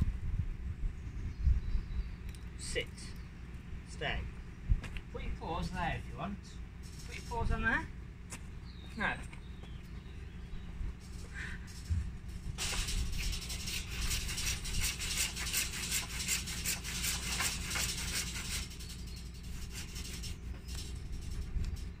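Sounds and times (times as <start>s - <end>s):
hand saw sawing: 12.6s - 21.4s.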